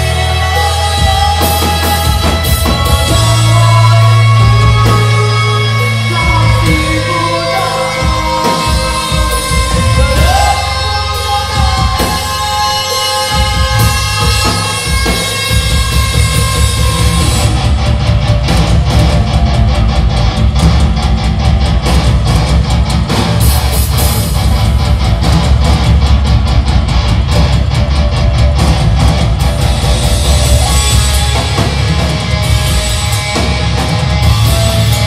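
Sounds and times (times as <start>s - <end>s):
distorted electric guitars: 0.0s - 35.0s
drum kit: 0.0s - 35.0s.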